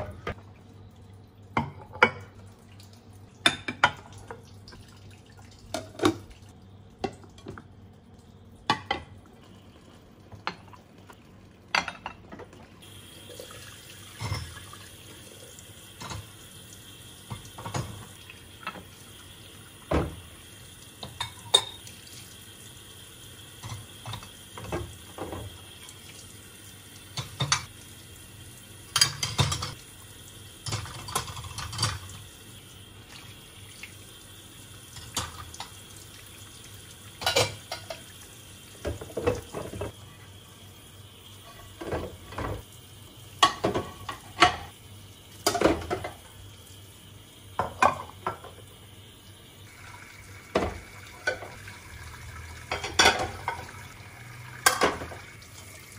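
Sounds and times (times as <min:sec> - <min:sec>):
tap water running: 0:00.0 - 0:55.9
dishes clinking: 0:11.7 - 0:12.6, 0:14.2 - 0:14.7, 0:21.0 - 0:21.9, 0:28.9 - 0:29.8, 0:37.2 - 0:38.1, 0:43.4 - 0:44.7, 0:52.7 - 0:53.8.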